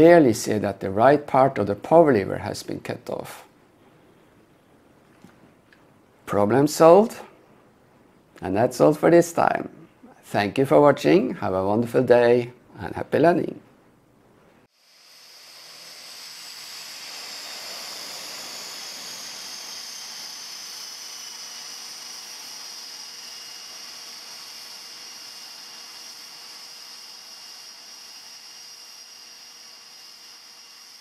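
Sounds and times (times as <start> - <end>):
turboprop turbine whine: 14.7 - 31.0.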